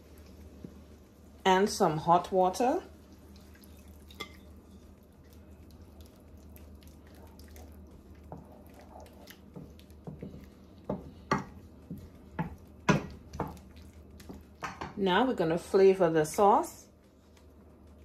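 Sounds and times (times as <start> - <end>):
wooden spoon stirring sauce: 2.8 - 15.0, 16.2 - 18.0
water pouring into a pan: 3.2 - 4.2
spoon knocking against pan: 10.1 - 13.6.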